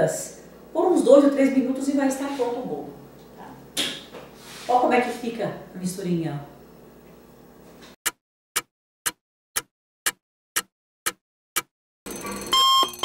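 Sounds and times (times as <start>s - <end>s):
clock ticking: 8.6s - 13.0s
ringing alarm tone: 12.1s - 13.0s.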